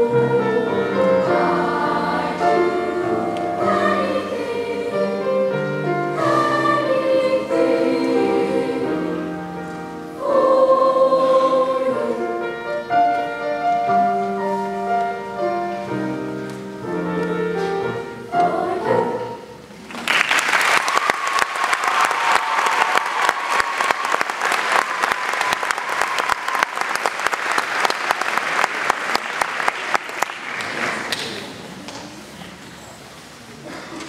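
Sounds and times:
children's choir singing: 0.0 - 16.3, 16.9 - 19.7
audience applause: 19.8 - 31.5.

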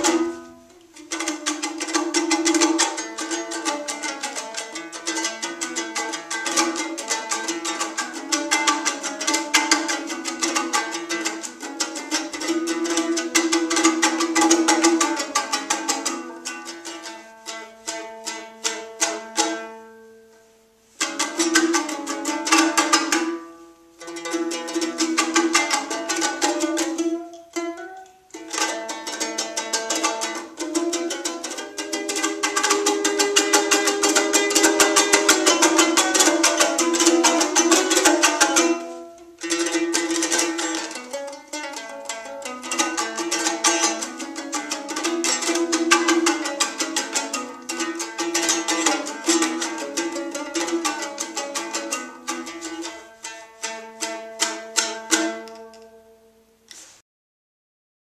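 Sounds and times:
lute strummed fast: 0.0 - 19.8, 21.0 - 55.7.

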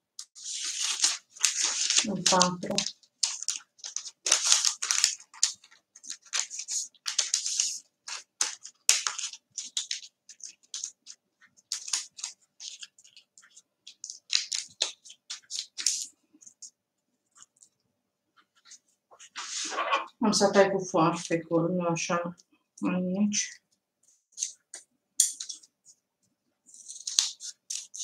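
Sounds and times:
paper rustling and crinkling: 0.2 - 16.7, 18.4 - 20.1, 26.7 - 28.0.

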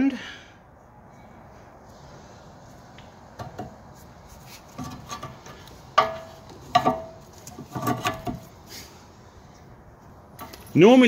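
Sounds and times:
metal knocks and clinks of brake parts: 4.8 - 8.5, 10.3 - 11.0.

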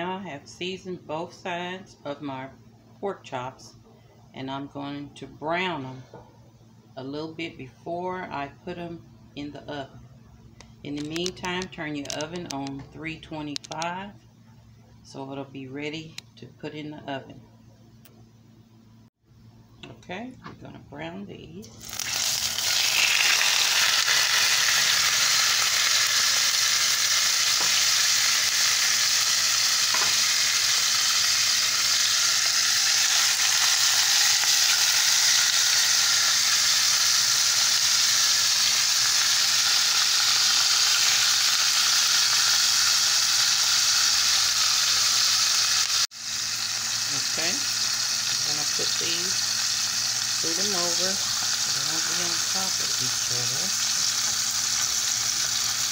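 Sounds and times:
meat sizzling in a skillet: 21.8 - 55.9.

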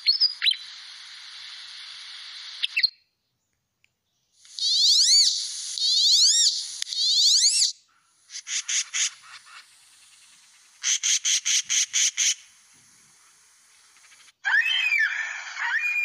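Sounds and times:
duck whistled squeals: 4.6 - 7.7, 14.5 - 16.0
magpie short clipped calls: 4.6 - 9.8, 10.6 - 12.5.

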